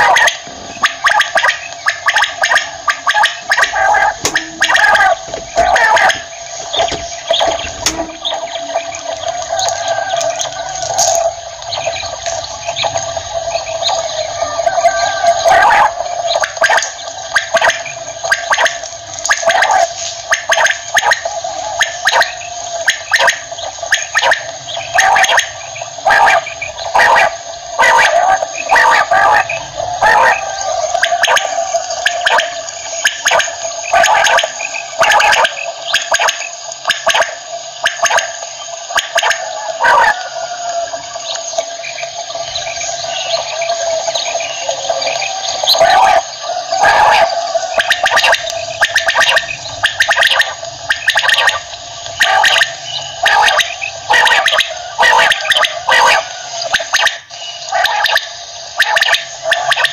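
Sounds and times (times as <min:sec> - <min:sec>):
quail calling: 0:00.0 - 0:59.9.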